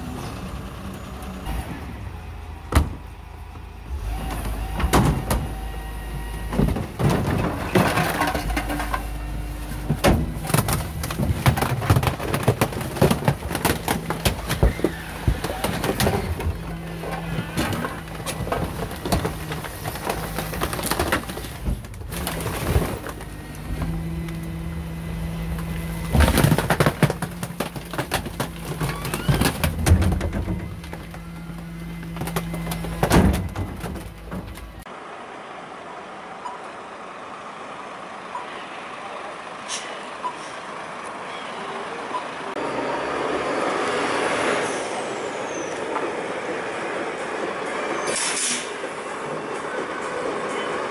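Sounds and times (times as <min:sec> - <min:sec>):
rubbish truck engine hum: 0:00.0 - 0:50.9
high squeal: 0:42.7 - 0:46.0.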